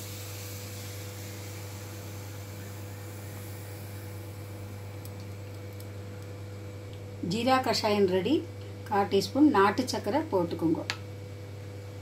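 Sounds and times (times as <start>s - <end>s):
even hiss: 0.0s - 6.0s
low hum: 0.0s - 8.9s.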